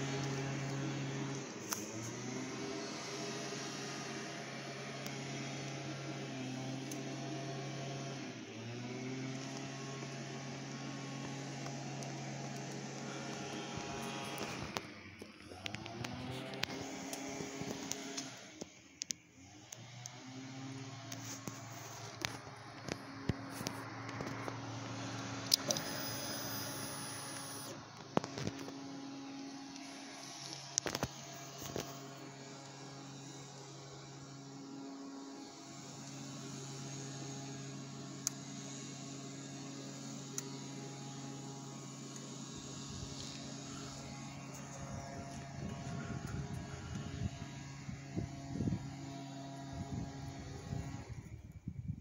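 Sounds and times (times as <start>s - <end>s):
fuel pump whine: 0.0s - 52.0s
steady low hum: 20.9s - 52.0s.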